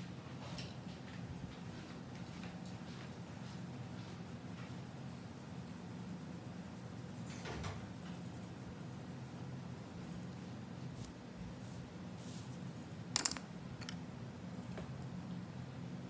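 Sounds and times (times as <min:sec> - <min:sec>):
steady low hum: 0:00.0 - 0:16.0
coloured pencil scratching on paper: 0:01.7 - 0:11.1.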